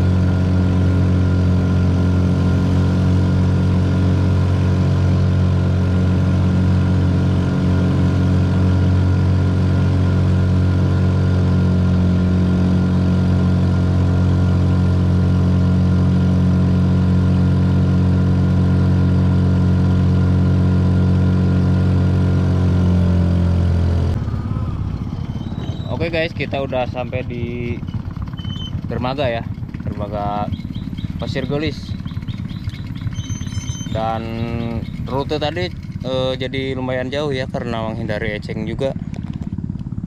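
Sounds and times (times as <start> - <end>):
motorcycle engine at high revs: 0.0 - 40.0.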